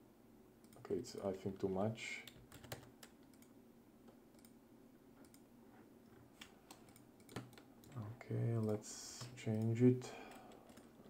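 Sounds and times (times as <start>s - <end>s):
low room hum: 0.0s - 11.0s
keyboard and mouse clicks: 0.6s - 1.2s, 2.2s - 3.6s, 5.2s - 5.4s, 6.4s - 8.0s, 8.6s - 11.0s.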